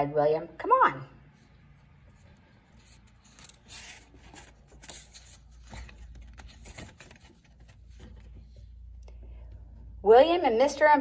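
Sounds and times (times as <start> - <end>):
low steady hum: 0.0 - 11.0
book pages turning: 1.5 - 9.0.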